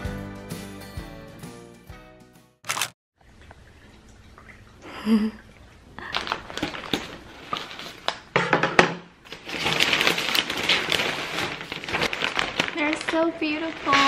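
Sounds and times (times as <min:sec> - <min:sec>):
paper wrapping rustling and crinkling: 0:02.7 - 0:03.0, 0:06.0 - 0:08.2, 0:09.3 - 0:14.0.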